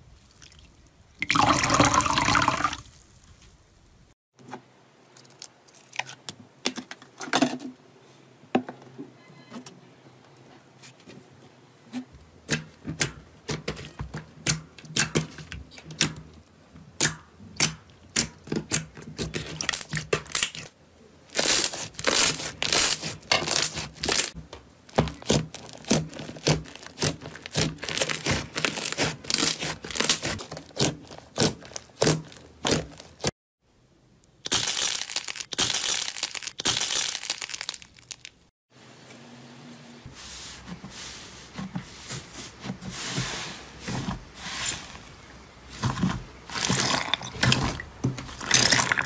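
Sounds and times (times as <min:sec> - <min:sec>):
crunchy slime crackling: 0:21.3 - 0:33.3, 0:34.4 - 0:38.5.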